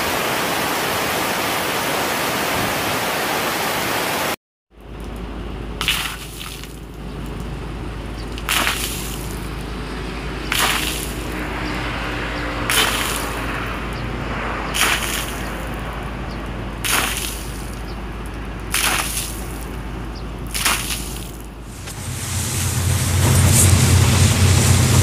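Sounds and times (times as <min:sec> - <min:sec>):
water splashing: 0:05.7 - 0:25.0
steady low hum: 0:15.3 - 0:25.0.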